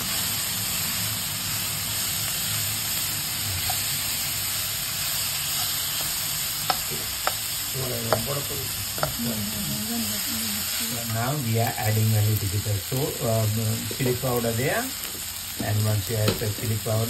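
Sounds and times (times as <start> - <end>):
vegetables sizzling in hot oil: 0.0 - 17.0.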